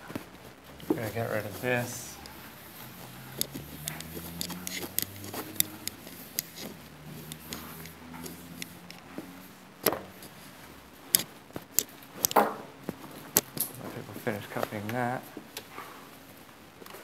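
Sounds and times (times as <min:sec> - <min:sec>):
footsteps: 0:00.0 - 0:15.9
light clicks: 0:01.5 - 0:09.2.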